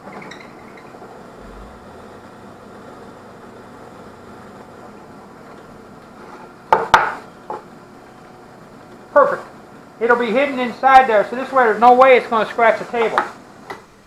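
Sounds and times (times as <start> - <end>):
drill press running: 1.1 - 6.2.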